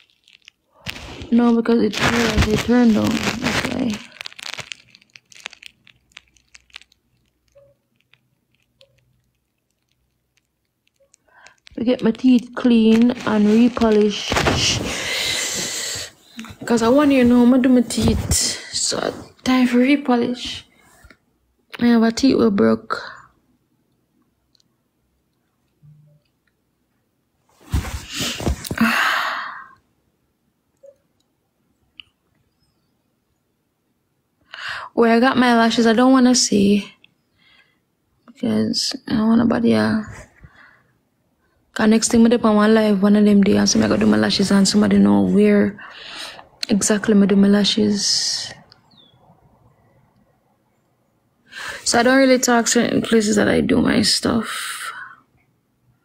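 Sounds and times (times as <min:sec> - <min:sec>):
mouth clicks and smacks: 0:02.0 - 0:13.7, 0:31.9 - 0:32.2.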